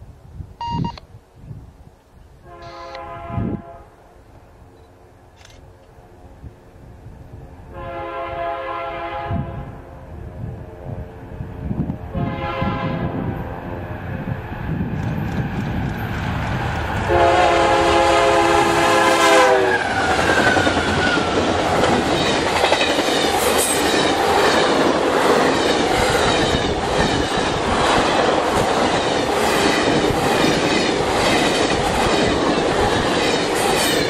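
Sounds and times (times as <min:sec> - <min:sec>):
locomotive horn chord: 0:02.4 - 0:04.1, 0:07.7 - 0:09.9, 0:12.1 - 0:14.0, 0:17.1 - 0:19.9
train wheels clickety-clack: 0:14.9 - 0:17.1, 0:19.9 - 0:34.0.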